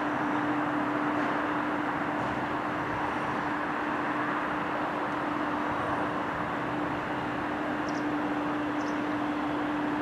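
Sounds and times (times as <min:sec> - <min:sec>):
constant electric hum: 0:00.0 - 0:10.0
train rolling noise: 0:00.0 - 0:10.0.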